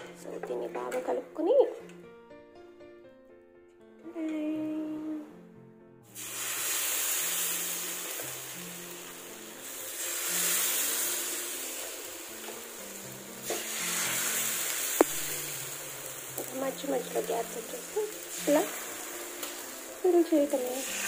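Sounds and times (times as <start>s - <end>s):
soft background music: 0.0s - 21.0s
batter sizzling on hot pan: 6.0s - 21.0s.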